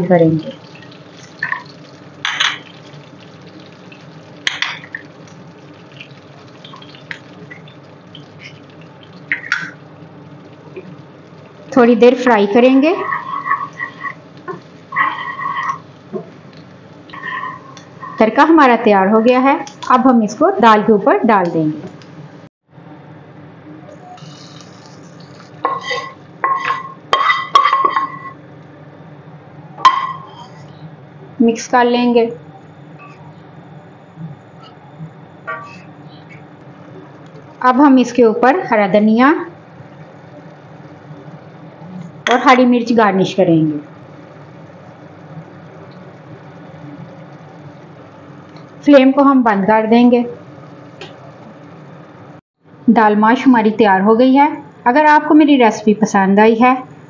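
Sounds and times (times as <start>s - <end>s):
faint butter sizzle: 0.0s - 19.8s, 24.2s - 28.4s, 35.6s - 52.3s
butter sizzling in frying pan: 0.4s - 18.2s.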